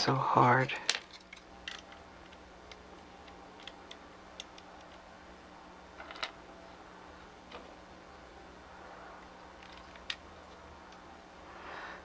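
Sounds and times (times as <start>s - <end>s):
small plastic parts clicking: 0.8s - 5.1s, 6.0s - 6.4s, 9.2s - 11.1s.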